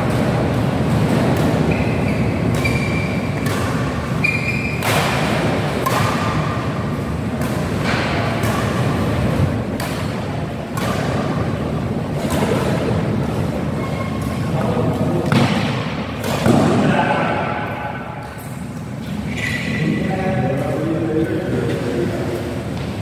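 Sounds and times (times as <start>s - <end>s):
rackets hitting shuttlecock: 0.0s - 18.9s
shoes squeaking on court: 1.0s - 5.2s, 12.1s - 15.2s, 18.2s - 19.8s.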